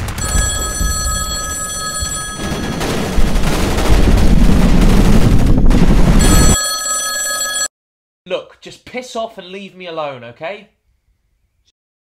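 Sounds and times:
phone ringing: 0.2 - 2.9, 6.2 - 7.7
video game gunfire: 2.4 - 6.6.

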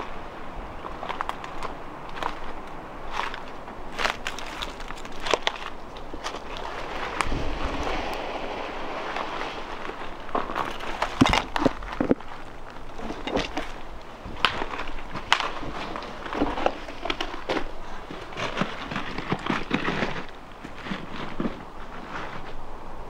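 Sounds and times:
footsteps crunching on rubble: 0.7 - 8.1, 9.0 - 22.5
twigs snapping underfoot: 0.8 - 7.4, 10.3 - 21.0.

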